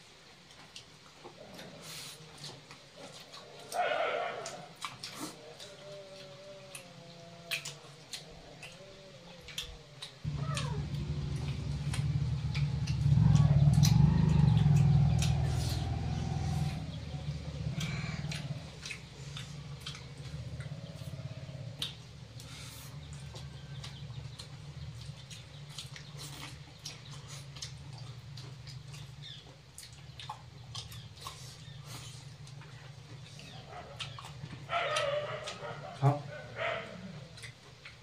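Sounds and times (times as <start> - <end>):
low rumbling hum: 8.3 - 37.4
cat meowing: 10.3 - 11.0.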